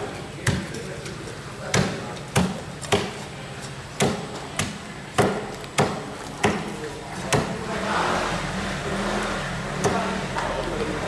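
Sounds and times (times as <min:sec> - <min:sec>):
cleaver chopping on cutting board: 0:01.7 - 0:03.2, 0:04.0 - 0:06.7.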